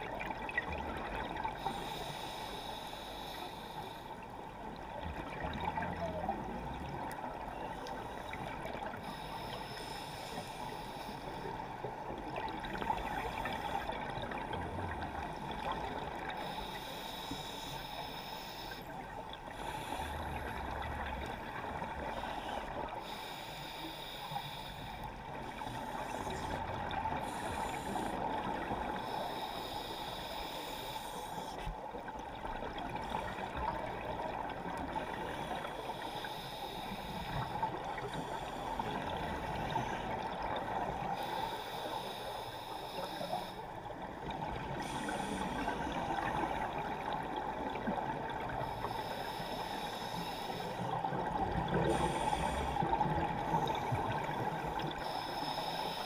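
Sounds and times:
regulator exhale bubbles: 44.3s - 56.0s.

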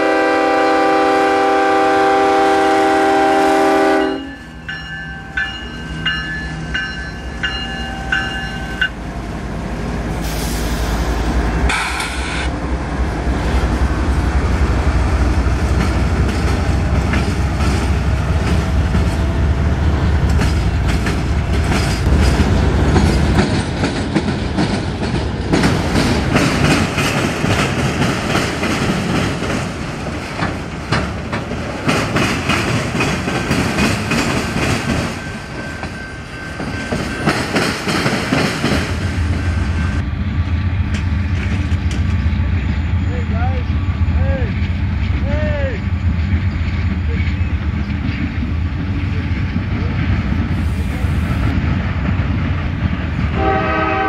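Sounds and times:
locomotive horn: 0.0s - 4.5s, 53.4s - 54.0s
bell ringing: 4.1s - 9.0s
freight cars rolling on rails: 4.3s - 53.7s
locomotive engine rumble: 4.5s - 37.5s, 38.3s - 54.0s.

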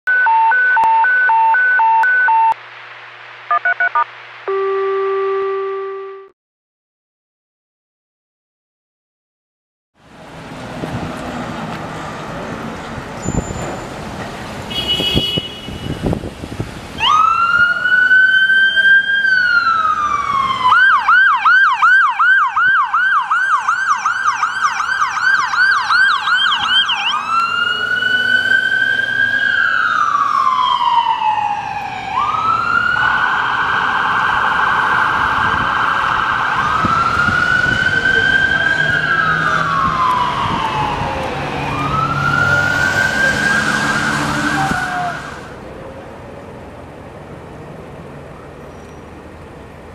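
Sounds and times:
electronic siren wailing and yelping: 0.1s - 2.6s, 3.5s - 6.3s, 19.4s - 45.4s.

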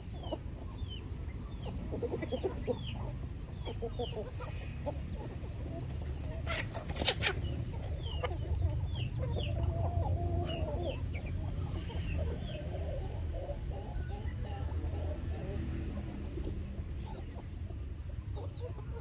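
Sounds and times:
chickens clucking: 0.0s - 19.0s
steady low rumble: 0.8s - 18.3s
repeating high chirp: 2.4s - 8.1s, 12.3s - 17.2s.

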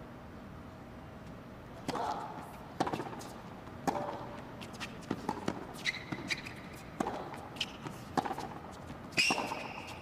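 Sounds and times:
rackets striking tennis ball: 1.8s - 10.0s
tennis ball bouncing: 1.8s - 10.0s
sneaker squeaks on court: 5.6s - 7.9s, 9.1s - 10.0s.

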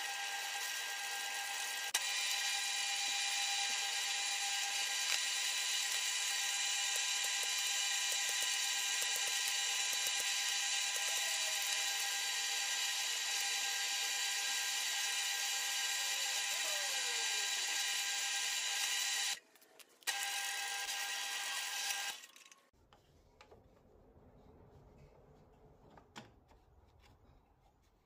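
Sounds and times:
drill press drilling wood: 0.0s - 19.4s.

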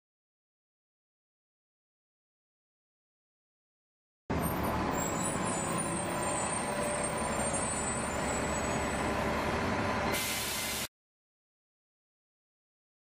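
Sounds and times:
bus engine rumbling: 4.3s - 10.9s
air hissing: 10.1s - 10.9s.

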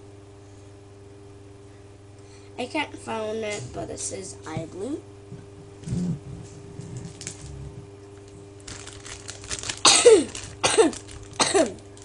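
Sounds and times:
plastic bag rustling: 6.5s - 12.0s
person coughing: 9.8s - 11.8s.

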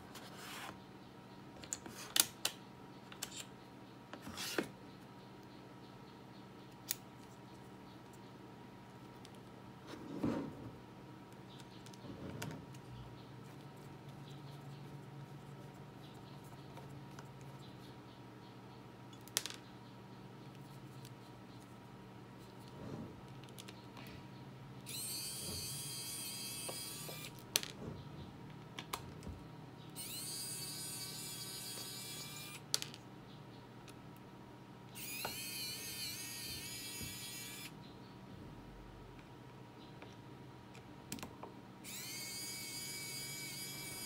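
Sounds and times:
electric screwdriver motor whine: 24.9s - 27.3s, 30.0s - 32.6s, 35.0s - 37.7s, 41.9s - 44.0s.

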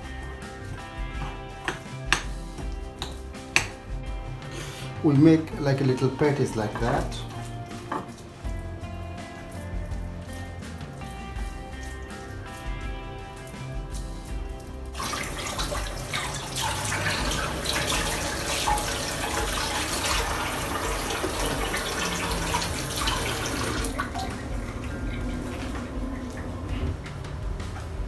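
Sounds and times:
soft background music: 0.0s - 28.0s
tap water running into sink: 14.4s - 27.9s.

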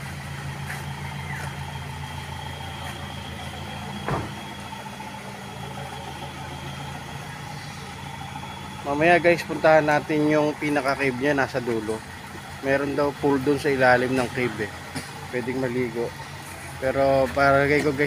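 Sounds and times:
vehicle engine humming: 0.0s - 18.0s
short knock: 4.0s - 4.4s.

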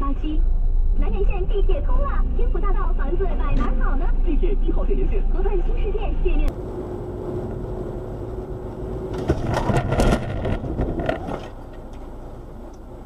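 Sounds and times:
road and engine noise in car: 0.0s - 13.0s
car crash impacts and crunching: 9.1s - 11.5s.

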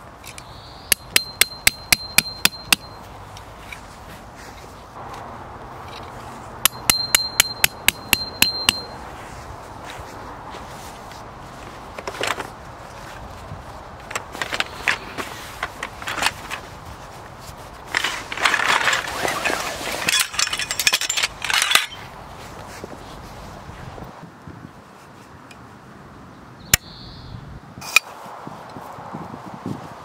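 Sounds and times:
metal tent poles knocking: 0.9s - 3.0s, 5.9s - 8.9s.

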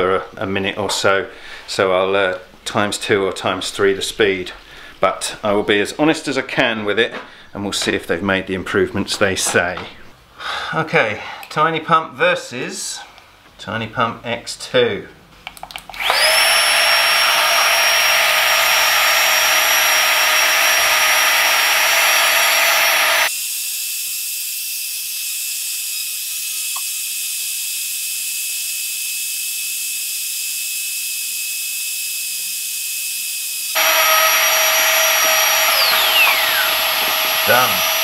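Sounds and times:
air pump motor whining: 16.0s - 23.3s, 33.8s - 38.0s.

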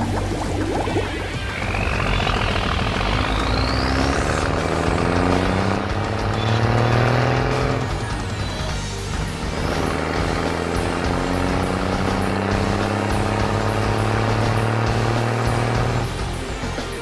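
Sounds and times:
high rising sweep: 0.0s - 6.3s
background music: 0.0s - 17.0s
cartoon truck engine revving: 0.0s - 17.0s.

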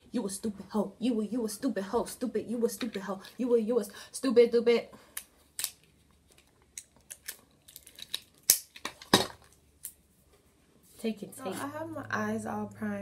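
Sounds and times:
adhesive tape pulled and torn: 5.2s - 9.2s.

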